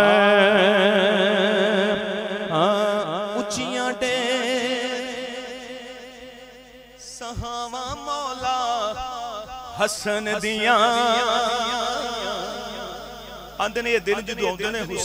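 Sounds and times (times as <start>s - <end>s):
man singing a hymn: 7.2s - 9.2s, 9.8s - 15.0s.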